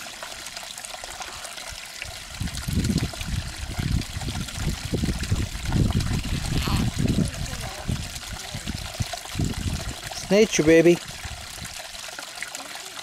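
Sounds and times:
trickling water-like hiss: 0:00.0 - 0:13.0
low rumbling gusts: 0:02.3 - 0:10.3, 0:11.0 - 0:11.8.

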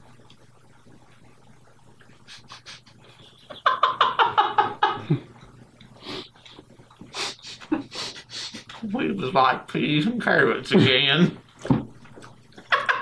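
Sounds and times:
man laughing: 0:02.3 - 0:05.3, 0:07.2 - 0:08.8, 0:12.6 - 0:13.0.

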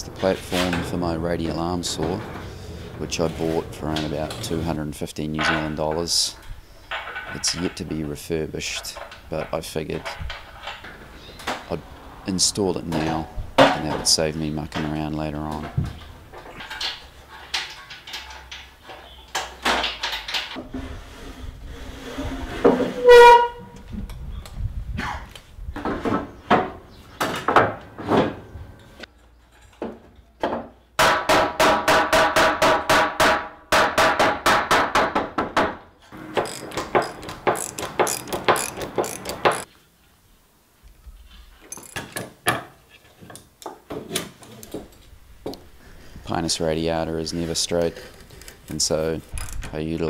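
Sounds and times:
knocks and clatter of timber: 0:06.9 - 0:11.7, 0:12.9 - 0:20.8, 0:25.0 - 0:28.5, 0:29.6 - 0:39.7, 0:41.6 - 0:45.7.

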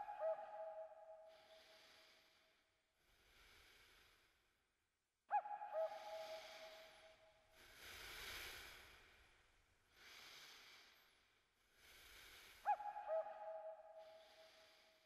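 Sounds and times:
owl hoot: 0:00.0 - 0:01.1, 0:05.3 - 0:06.9, 0:12.7 - 0:14.0
faint hissing breaths: 0:01.4 - 0:04.5, 0:06.2 - 0:12.7.

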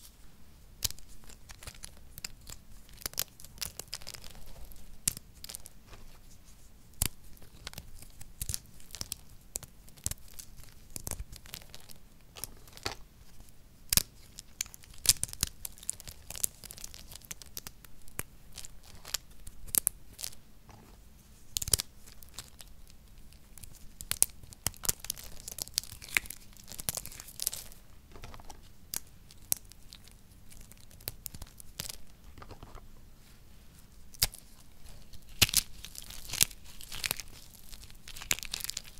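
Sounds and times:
soap crackling and crunching: 0:00.8 - 0:06.3, 0:06.9 - 0:20.4, 0:21.4 - 0:32.8, 0:34.0 - 0:38.9
loose pieces rustling: 0:24.8 - 0:33.0.

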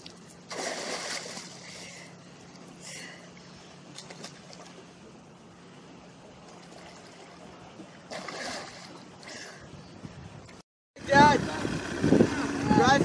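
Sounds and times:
swimmer splashing and paddling: 0:00.0 - 0:09.6
water lapping: 0:00.0 - 0:09.7
low steady hum: 0:00.0 - 0:13.0.

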